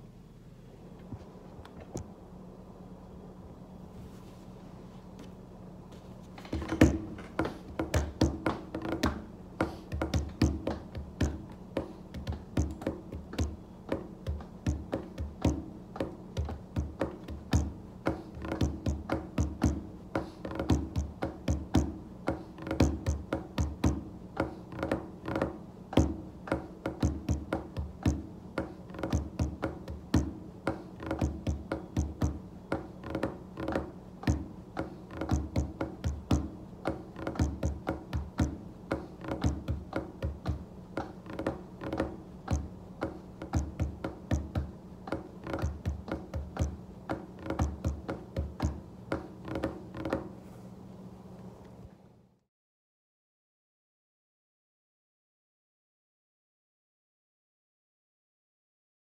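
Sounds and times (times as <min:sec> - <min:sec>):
hands drumming on a desk: 0:06.4 - 0:50.4.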